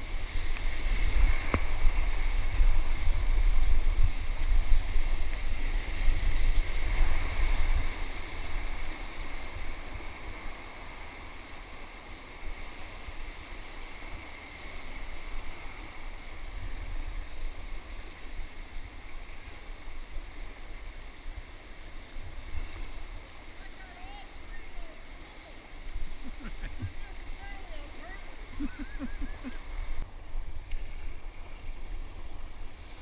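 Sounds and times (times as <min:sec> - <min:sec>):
whitewater rushing: 0:23.0 - 0:30.0.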